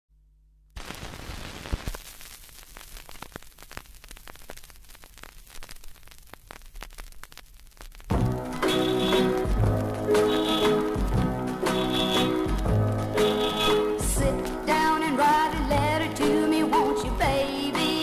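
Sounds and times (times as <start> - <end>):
vinyl crackles and pops: 0.7 - 18.0
record music: 0.8 - 18.0.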